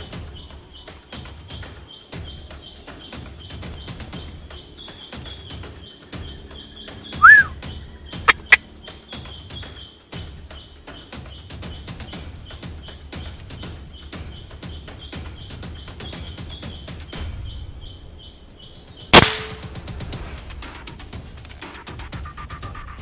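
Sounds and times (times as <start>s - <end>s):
insects chirring: 0.0s - 22.3s
loud rising and falling call: 7.1s - 7.6s, 8.3s - 8.6s
sharp clicks: 8.3s - 8.6s, 19.2s - 19.7s.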